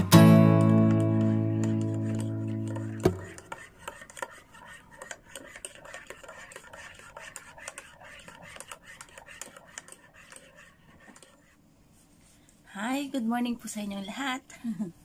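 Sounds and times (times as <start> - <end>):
teaspoon stirring in ceramic cup: 0.9 - 11.6.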